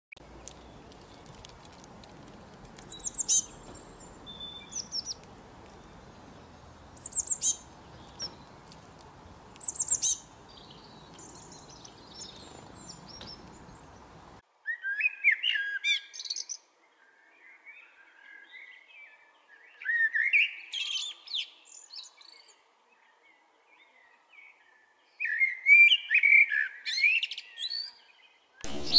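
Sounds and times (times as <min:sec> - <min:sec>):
small birds chirping: 0:00.1 - 0:16.6
blackbird singing: 0:02.3 - 0:16.6.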